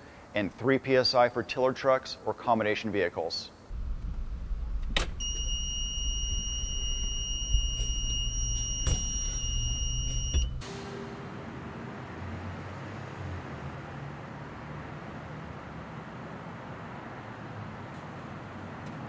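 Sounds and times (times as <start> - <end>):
low rumble: 3.7 - 8.8
high-pitched warning buzzer: 5.2 - 10.9.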